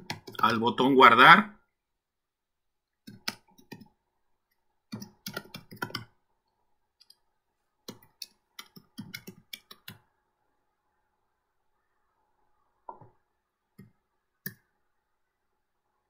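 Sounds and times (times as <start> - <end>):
computer keyboard typing: 0.0 - 0.5, 3.0 - 3.9, 4.9 - 6.2, 7.8 - 10.0.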